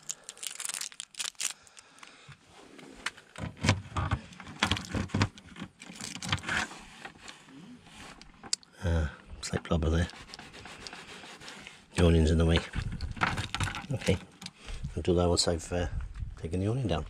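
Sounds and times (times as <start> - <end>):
plastic hatch clicks and knocks: 12.6 - 14.2.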